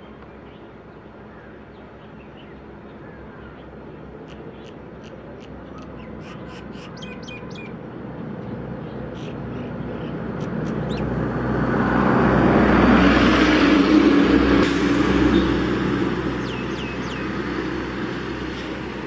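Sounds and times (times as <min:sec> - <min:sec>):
small birds chirping: 0:00.0 - 0:11.1, 0:16.4 - 0:17.4
outboard engine droning: 0:00.0 - 0:19.0.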